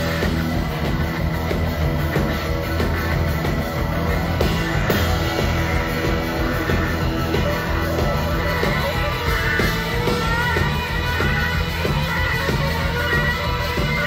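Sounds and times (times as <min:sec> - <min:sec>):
bass: 0:00.0 - 0:14.0
electric guitar: 0:00.0 - 0:14.0
steady drum beat: 0:00.0 - 0:14.0.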